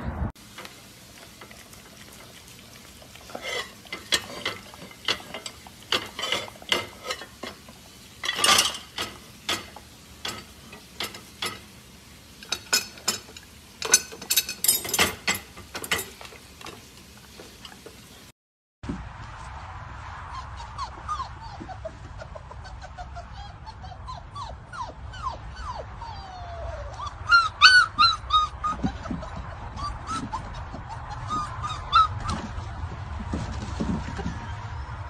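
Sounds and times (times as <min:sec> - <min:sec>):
puppy licking plates: 0:00.4 - 0:11.8.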